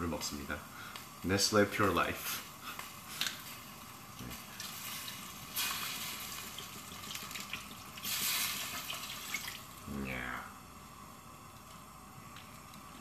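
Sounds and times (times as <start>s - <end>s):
water pouring into a pot: 2.9s - 9.9s.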